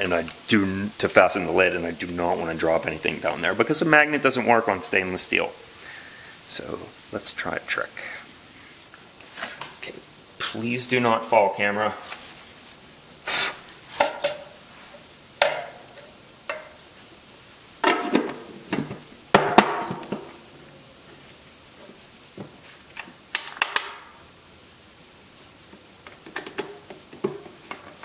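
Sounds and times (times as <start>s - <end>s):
plastic lid knocking and scraping: 17.8s - 20.3s.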